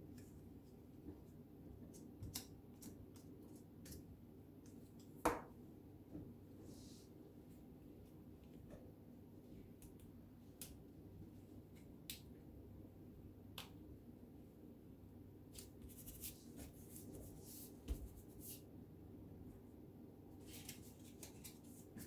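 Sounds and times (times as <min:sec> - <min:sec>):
low room hum: 0:00.0 - 0:22.0
paper rustling: 0:20.4 - 0:22.0.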